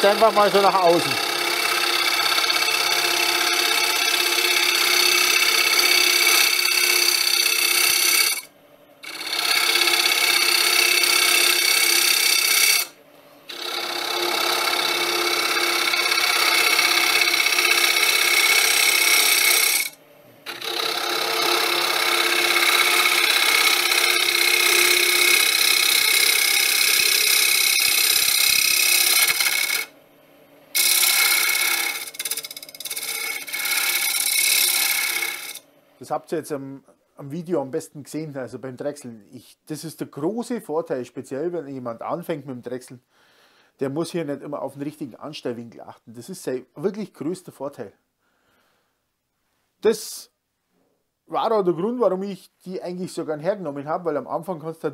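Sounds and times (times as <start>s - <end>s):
turning tool cutting wood: 0.0s - 29.9s, 30.7s - 35.6s
wood lathe whine: 0.0s - 29.9s, 30.7s - 35.6s.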